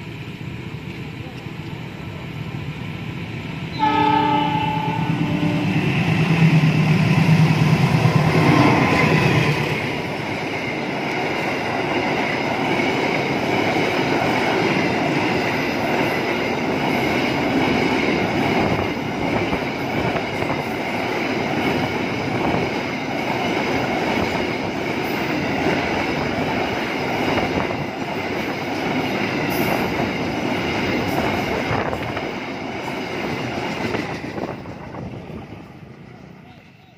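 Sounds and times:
locomotive horn: 3.7 - 5.9
train wheel clatter: 6.1 - 35.6.

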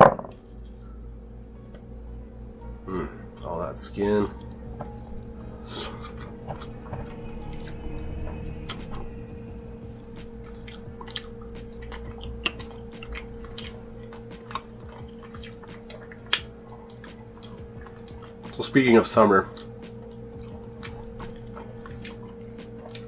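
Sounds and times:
faint steady hum: 0.0 - 23.0
close-up chewing: 4.8 - 8.0, 9.8 - 18.6, 19.4 - 23.0.

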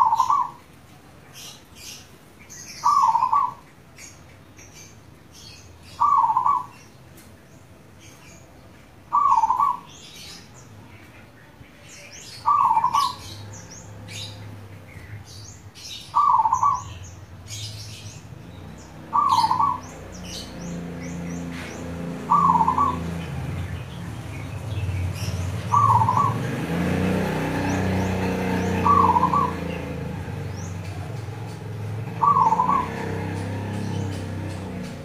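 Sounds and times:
dove cooing song: 0.0 - 0.7, 2.7 - 3.7, 6.0 - 6.8, 9.1 - 10.0, 12.4 - 14.4, 16.1 - 17.0, 19.0 - 23.7, 25.2 - 35.0
small birds chirping: 0.0 - 35.0.

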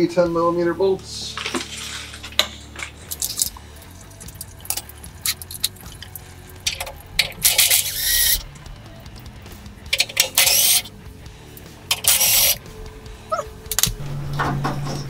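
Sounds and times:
hand tools clicking on metal: 1.4 - 8.5, 9.9 - 10.9, 11.6 - 12.7.

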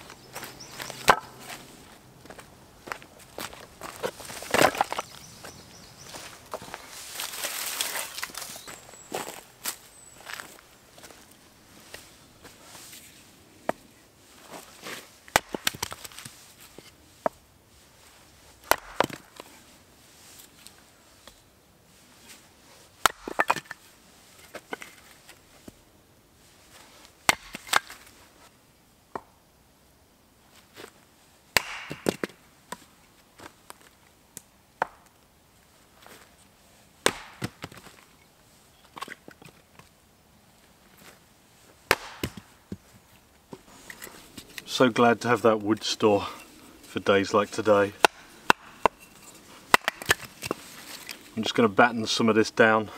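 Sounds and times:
hatchet chopping wood: 1.0 - 1.3, 15.3 - 16.0, 18.7 - 19.3, 23.0 - 23.7, 27.3 - 27.9, 31.6 - 32.4, 34.8 - 35.1, 37.0 - 37.8, 41.9 - 42.5, 48.0 - 49.0, 49.7 - 50.6
split wood pieces clattering: 3.8 - 5.1, 23.0 - 23.8, 48.0 - 51.3.

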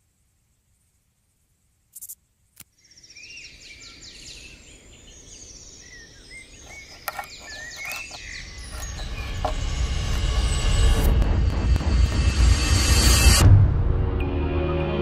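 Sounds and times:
birds chirping and singing: 2.8 - 9.8
low rumble: 8.5 - 14.7.

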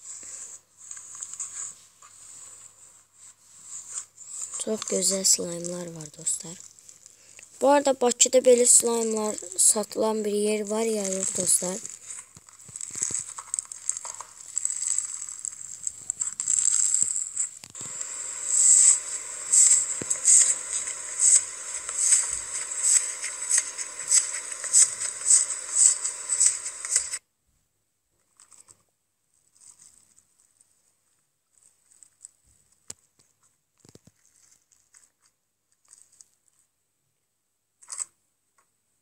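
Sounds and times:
slime crackling: 8.5 - 27.1.

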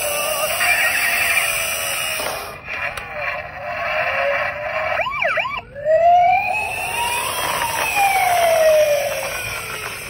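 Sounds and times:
toy siren wailing: 0.0 - 2.2, 5.0 - 10.0.

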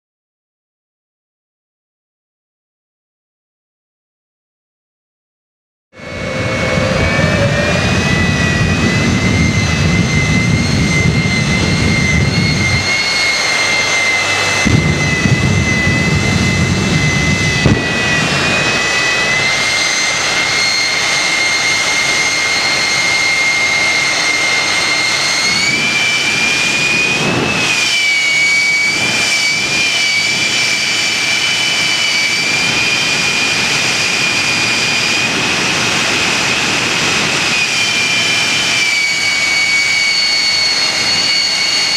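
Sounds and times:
jet engine high whine: 5.9 - 41.9
deep rumble: 6.0 - 30.8.

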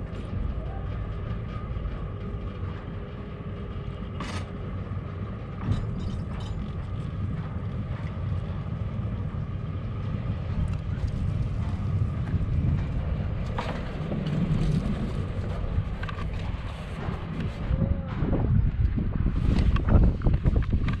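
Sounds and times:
chairlift low rumble: 0.0 - 21.0
cable machinery clicks and knocks: 5.4 - 9.0, 10.6 - 19.0, 19.6 - 21.0.

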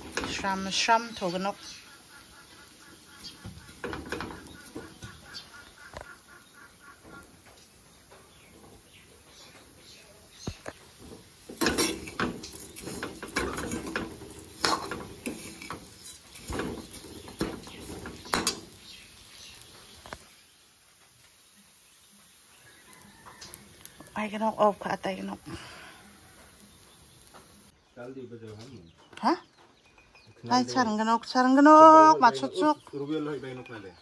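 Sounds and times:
rice grains rattling in a pan: 0.0 - 1.9, 8.3 - 27.7
metal spoon scraping a wok: 10.9 - 18.8.

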